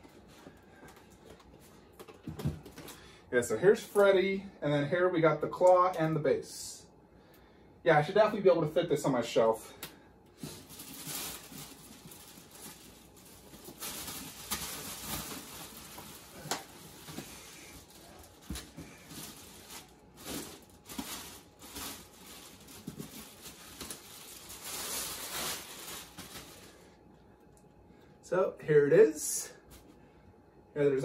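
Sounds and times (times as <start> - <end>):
styrofoam and plastic rustling: 10.4 - 27.0.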